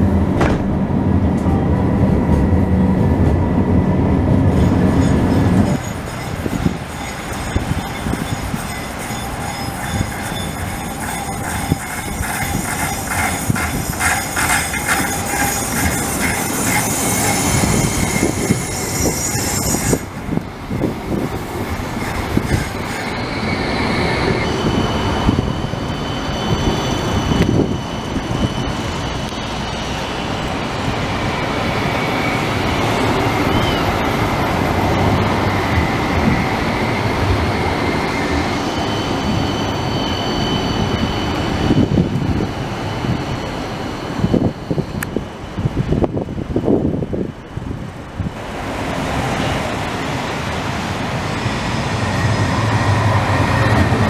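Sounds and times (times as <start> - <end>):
high tram whine: 0.0 - 54.0
tram wheels rumbling on rail: 0.0 - 54.0
wheel squeal: 4.5 - 20.2, 21.8 - 29.6, 35.8 - 45.1.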